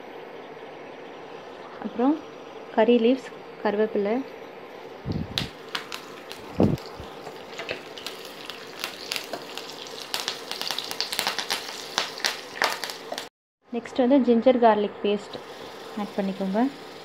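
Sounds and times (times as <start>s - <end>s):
oil sizzling in a frying pan: 5.4s - 13.3s, 15.2s - 17.0s.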